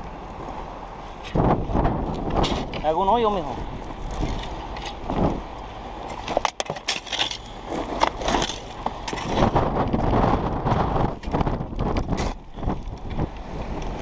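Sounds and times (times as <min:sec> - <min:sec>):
steady low rumble: 0:07.0 - 0:14.0.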